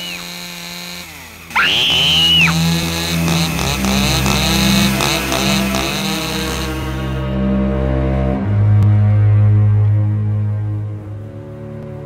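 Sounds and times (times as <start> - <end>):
chainsaw engine revving: 0.0 - 7.8.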